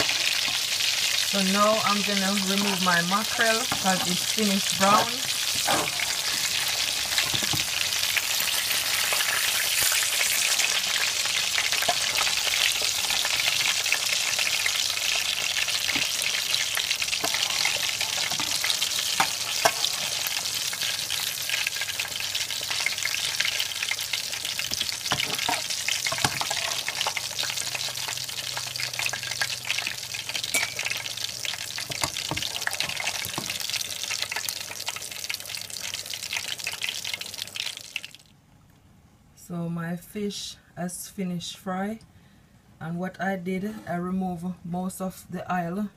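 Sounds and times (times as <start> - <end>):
fish frying in hot oil: 0.0 - 38.3
metal spatula scraping pot: 3.6 - 7.6, 17.1 - 20.8, 24.8 - 27.2.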